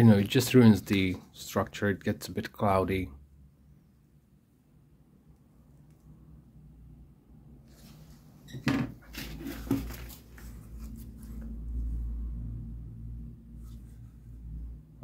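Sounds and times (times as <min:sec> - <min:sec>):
cardboard rustling and scraping: 0:07.7 - 0:11.6
low hum: 0:10.4 - 0:15.0.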